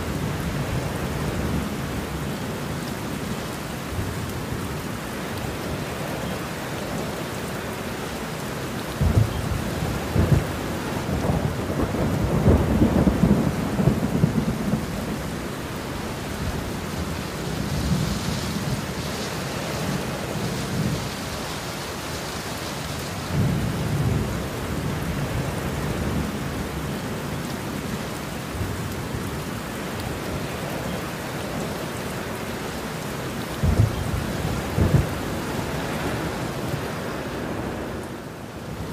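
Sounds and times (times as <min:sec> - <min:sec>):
heavy rain falling: 0:00.0 - 0:38.9
thunder rumbling and cracking: 0:09.0 - 0:15.3, 0:33.6 - 0:35.4.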